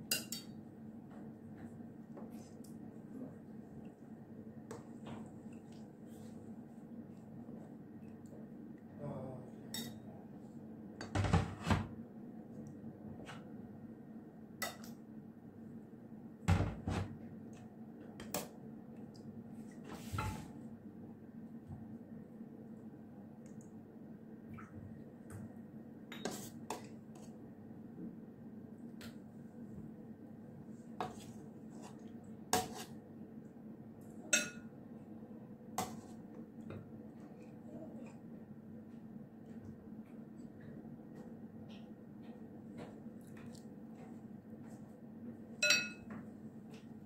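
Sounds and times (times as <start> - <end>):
metal spoon clinking on pot: 34.3 - 34.7, 45.6 - 46.1.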